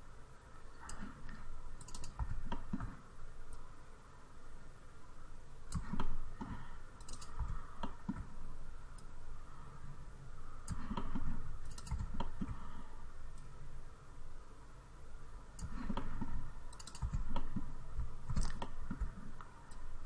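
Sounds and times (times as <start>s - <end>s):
low steady hum: 0.0s - 20.0s
mouse buttons clicking: 0.8s - 3.7s, 5.7s - 9.1s, 10.6s - 12.6s, 15.6s - 19.9s
keyboard keys clicking: 18.3s - 19.2s.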